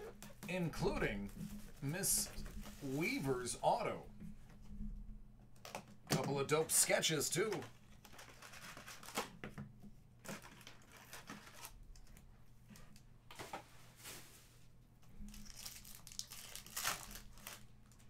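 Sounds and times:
card packs rustling and crinkling: 0:00.0 - 0:04.0, 0:05.8 - 0:09.5, 0:10.2 - 0:12.3, 0:15.2 - 0:18.0.

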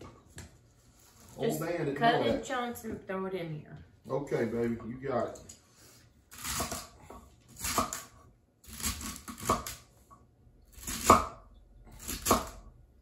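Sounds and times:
knife chopping on wooden board: 0:06.4 - 0:09.9, 0:10.8 - 0:12.7.

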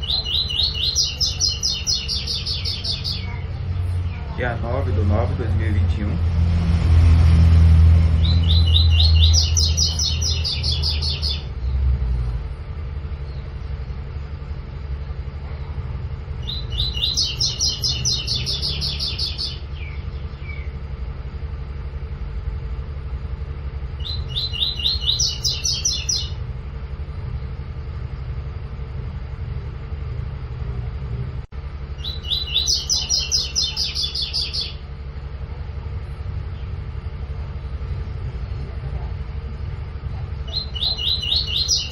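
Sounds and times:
bird singing: 0:00.0 - 0:06.2, 0:08.0 - 0:11.9, 0:13.1 - 0:13.7, 0:16.3 - 0:21.0, 0:23.9 - 0:26.4, 0:31.8 - 0:35.0, 0:40.4 - 0:41.9
low rumble: 0:00.0 - 0:41.9.

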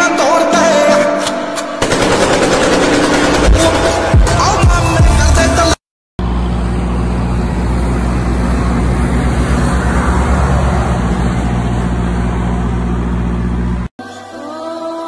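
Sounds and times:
truck diesel engine driving past: 0:06.2 - 0:13.9.

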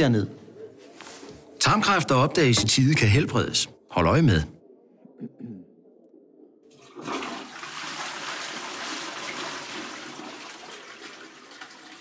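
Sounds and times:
toilet flushing: 0:06.7 - 0:12.0.

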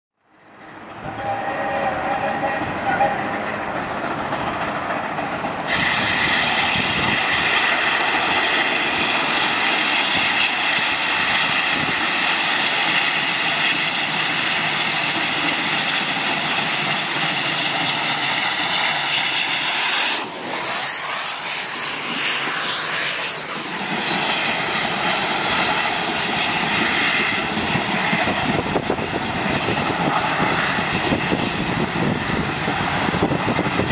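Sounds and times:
low train rumble: 0:00.2 - 0:33.9
steam locomotive hissing: 0:00.4 - 0:33.9
train whistle blast: 0:01.0 - 0:03.6.

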